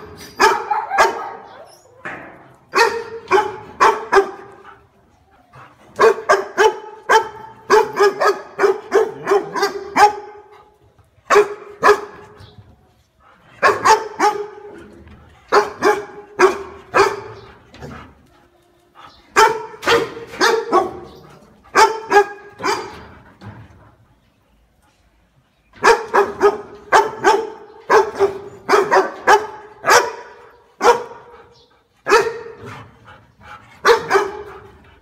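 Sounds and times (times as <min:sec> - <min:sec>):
dog barking: 0:00.4 - 0:01.6, 0:02.7 - 0:04.6, 0:06.0 - 0:10.5, 0:11.3 - 0:12.2, 0:13.6 - 0:14.6, 0:15.5 - 0:17.4, 0:19.4 - 0:23.0, 0:25.8 - 0:31.3, 0:32.1 - 0:32.6, 0:33.8 - 0:34.6.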